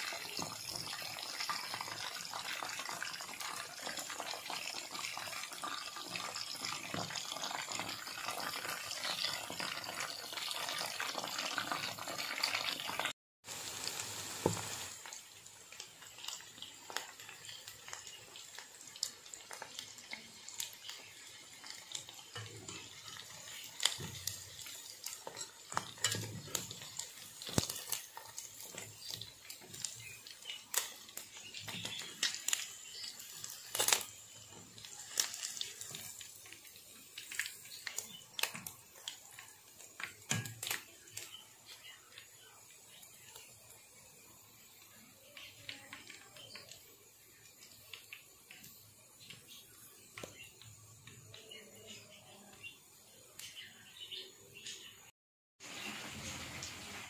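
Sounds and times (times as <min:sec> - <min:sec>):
deep-frying sizzle and crackle: 0:00.0 - 0:57.0
oil popping: 0:21.9 - 0:42.2.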